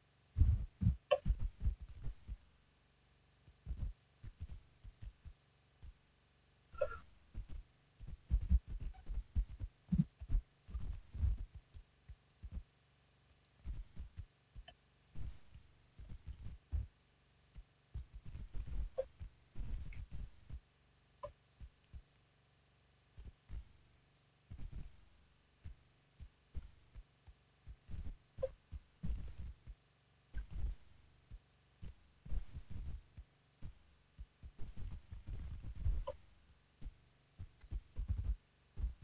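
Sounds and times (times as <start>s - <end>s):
faint short chirps: 6.7s - 7.1s.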